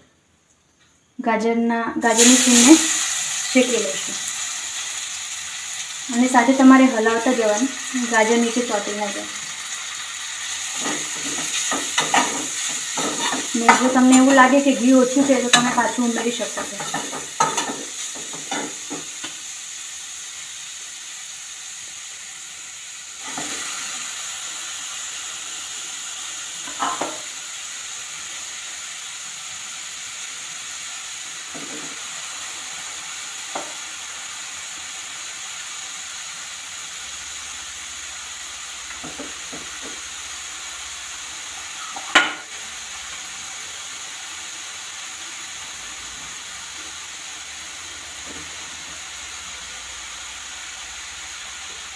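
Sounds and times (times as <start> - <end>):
food sizzling in a pan: 1.3 - 51.9
metal spoon knocking on pan: 10.8 - 14.4, 15.5 - 19.1, 41.9 - 42.5.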